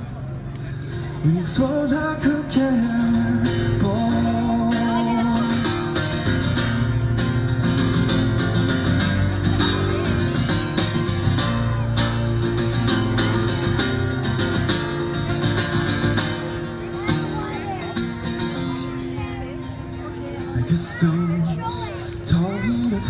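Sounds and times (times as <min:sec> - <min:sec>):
acoustic guitar strumming: 0:00.9 - 0:23.0.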